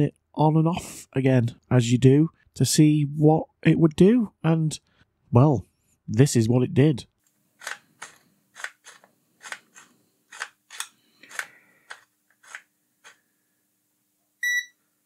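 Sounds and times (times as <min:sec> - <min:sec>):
short electronic beep: 0:14.4 - 0:14.8.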